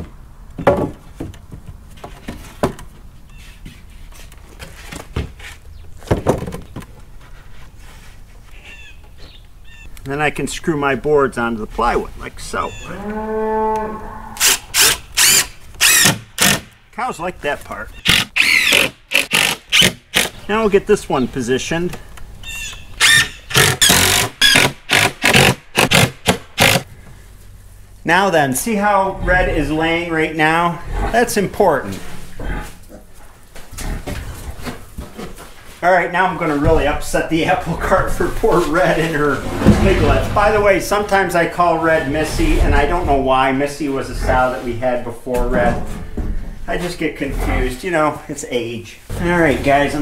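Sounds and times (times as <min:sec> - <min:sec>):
wooden knocks and thumps: 0:00.0 - 0:03.8, 0:04.5 - 0:07.1
cordless drill driving screws: 0:14.4 - 0:16.6, 0:18.1 - 0:20.3.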